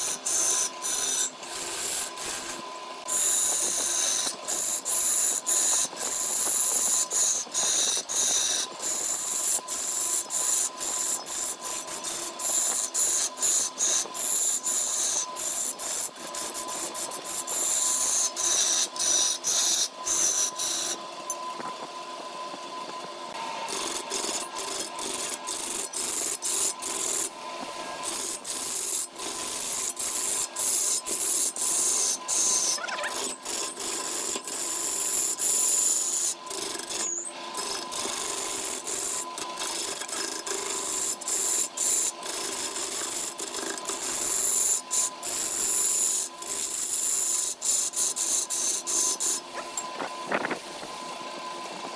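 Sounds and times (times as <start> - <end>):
lathe tool cutting wood hiss: 0.0 - 21.0.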